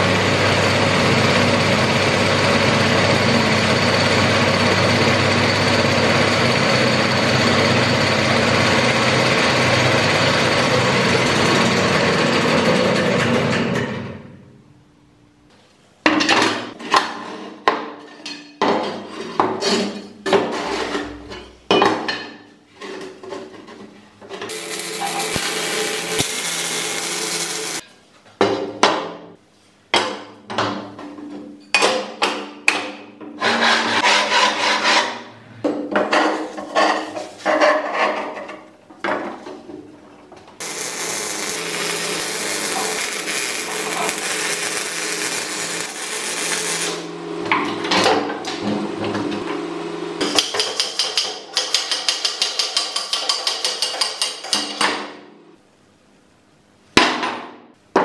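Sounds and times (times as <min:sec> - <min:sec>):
welding hiss: 0:24.5 - 0:27.8, 0:40.6 - 0:47.1.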